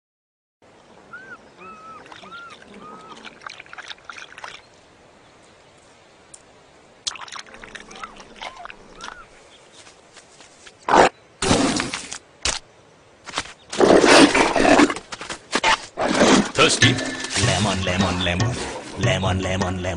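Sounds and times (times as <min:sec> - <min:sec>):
cheetah chirping: 0:01.1 - 0:03.5, 0:07.5 - 0:09.4.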